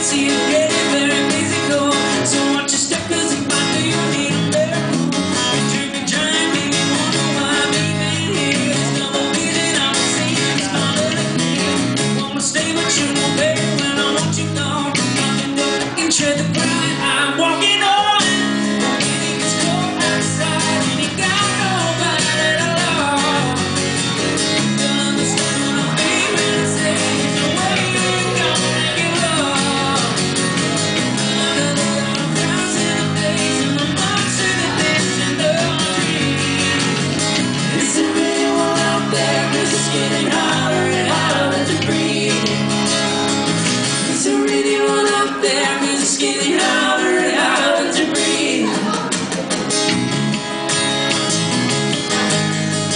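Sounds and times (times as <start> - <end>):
person singing: 0.0 - 23.8, 24.5 - 37.0, 37.6 - 43.1, 44.0 - 49.5
acoustic guitars strummed: 0.0 - 52.9.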